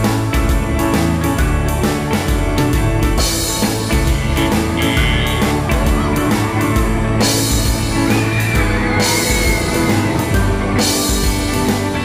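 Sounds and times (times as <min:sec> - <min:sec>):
rock music: 0:00.0 - 0:12.0.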